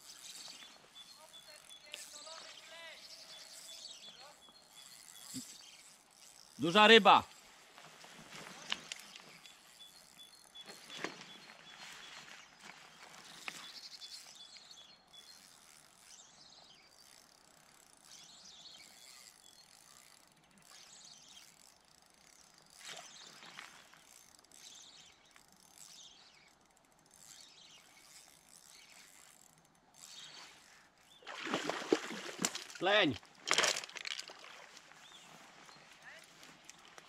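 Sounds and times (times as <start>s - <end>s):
fishing reel ratcheting clicks: 0.1s - 7.4s, 8.8s - 10.9s, 13.2s - 31.1s.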